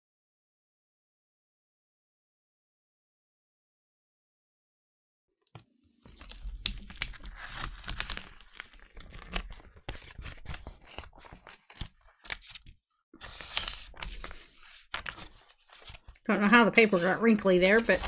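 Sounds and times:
paper crinkling and peeling off paint: 6.0s - 16.2s, 16.9s - 18.0s.

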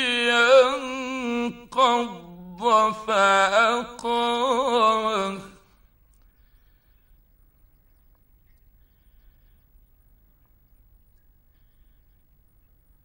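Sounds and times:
man reciting melodically: 0.0s - 5.8s.

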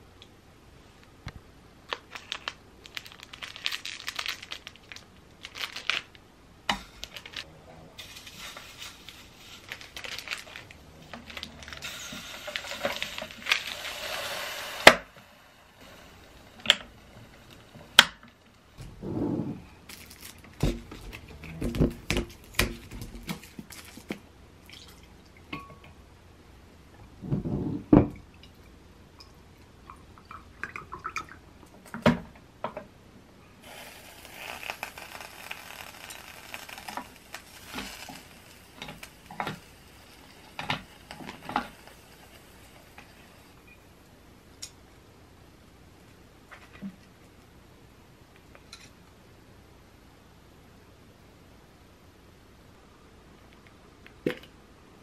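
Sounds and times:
plastic wrapper crinkling and tearing: 1.9s - 6.2s, 6.8s - 14.0s, 19.9s - 24.2s, 34.0s - 43.2s.

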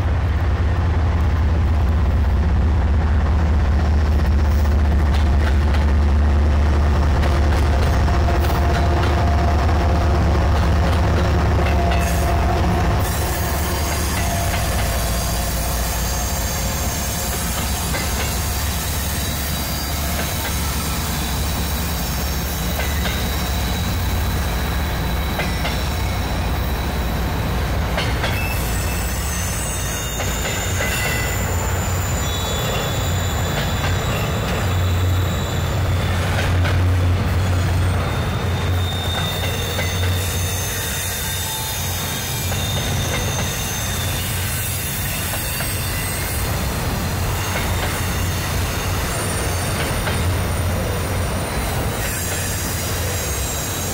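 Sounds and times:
diesel locomotive engine drone: 0.0s - 53.9s
rumble of train wheels: 0.0s - 53.9s
high-pitched wheel squeal: 28.3s - 36.4s, 37.4s - 53.9s.

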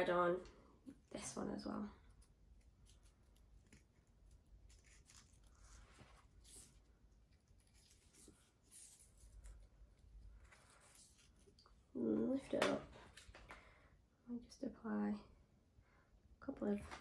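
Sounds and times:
crepe paper and wire rustling: 2.2s - 11.7s.

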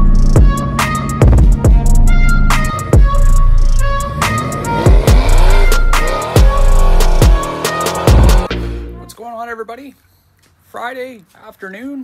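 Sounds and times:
hi-hat ticks: 0.1s - 0.5s.

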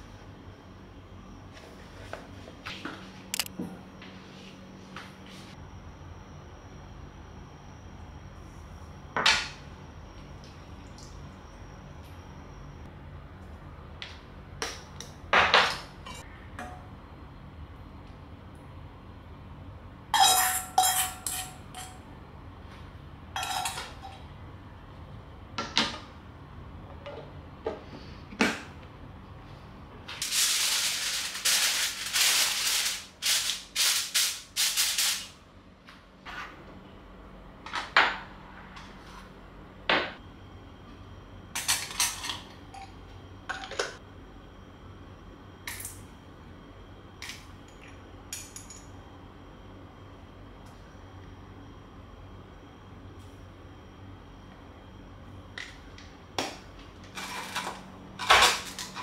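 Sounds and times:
metal kitchenware clinking: 20.2s - 22.0s, 23.4s - 24.2s
aluminium foil crinkling: 30.2s - 35.2s.

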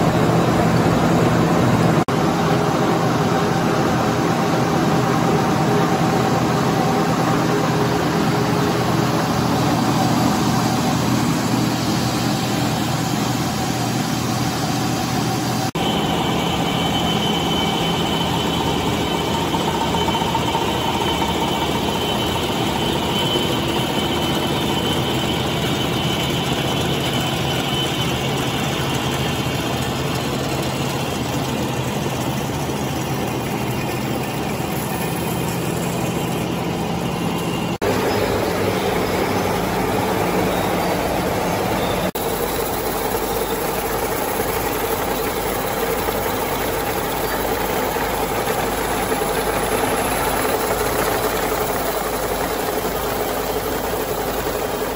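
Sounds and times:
factory machinery hum: 0.0s - 54.9s
faint high whine: 2.1s - 54.9s.

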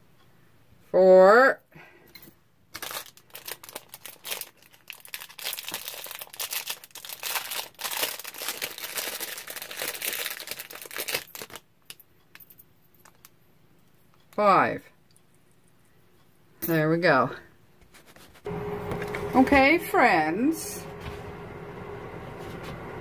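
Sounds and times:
plastic bag crinkling: 2.8s - 12.0s.

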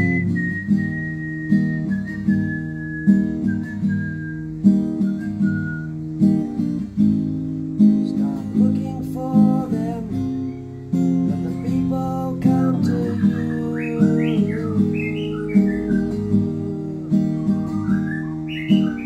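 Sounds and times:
person whistling melody: 0.0s - 6.0s, 9.3s - 19.0s
acoustic guitar strumming: 0.0s - 19.0s
person singing: 8.0s - 10.4s, 11.2s - 19.0s.

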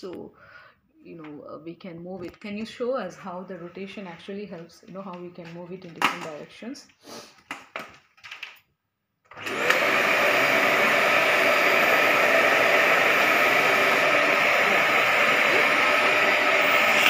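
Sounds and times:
vacuum cleaner motor whirring: 9.3s - 17.0s.

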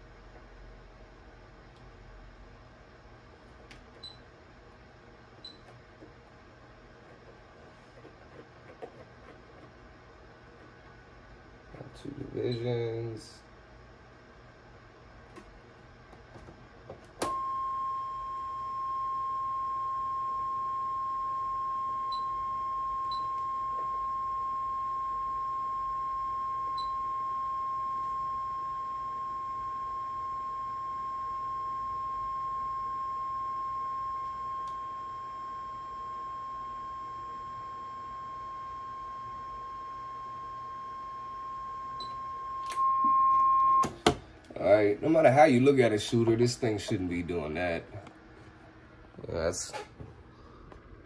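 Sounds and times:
steady audio test tone: 16.4s - 50.0s.

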